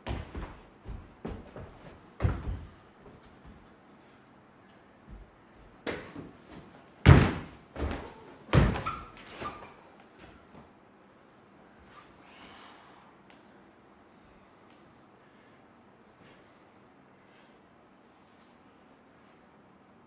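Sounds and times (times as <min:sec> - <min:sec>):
thuds on wooden stage floor: 0:07.0 - 0:09.0.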